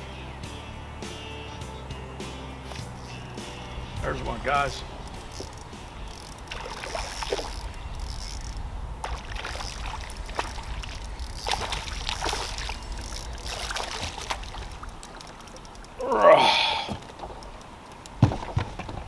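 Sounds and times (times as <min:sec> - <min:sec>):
steady low rumble: 0:02.8 - 0:16.0
fish splashing in water: 0:06.4 - 0:07.5, 0:09.0 - 0:15.9.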